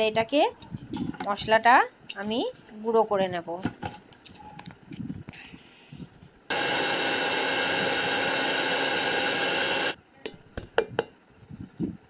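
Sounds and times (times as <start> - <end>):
mixer grinder grinding spices: 6.5 - 10.0.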